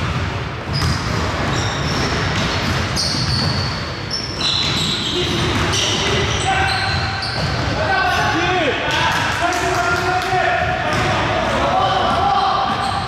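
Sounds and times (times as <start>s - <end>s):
basketball dribbling on wood floor: 0.0s - 3.7s
sneakers squeaking: 0.0s - 8.8s, 10.6s - 13.0s.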